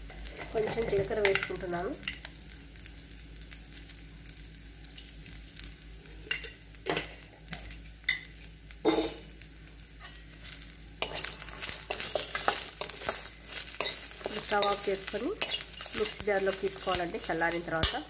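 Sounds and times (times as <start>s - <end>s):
food sizzling in oil: 0.0s - 18.0s
steel spoon scraping a pan: 10.0s - 18.0s.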